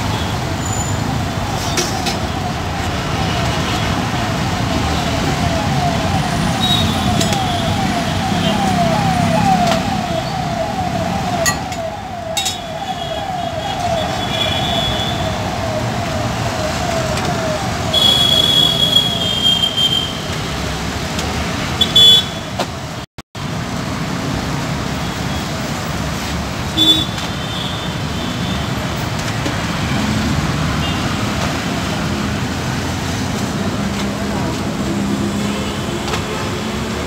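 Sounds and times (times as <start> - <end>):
road traffic noise: 0.0 - 37.0
falling siren-like tone: 0.1 - 19.6.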